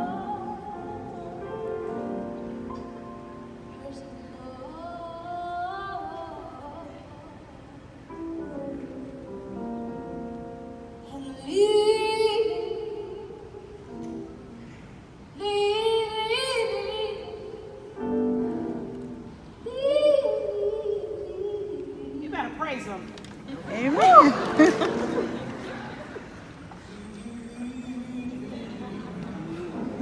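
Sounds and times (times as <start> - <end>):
woman singing with vibrato: 0.0 - 2.2, 3.5 - 7.9, 11.0 - 13.9, 15.3 - 18.9, 19.5 - 23.0.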